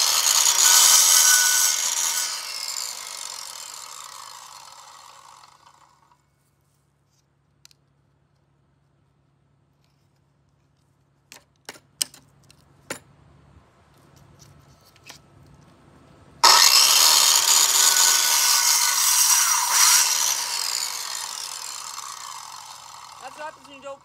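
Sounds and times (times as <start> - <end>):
circular saw cutting wood: 0.0 - 6.1, 16.4 - 24.0.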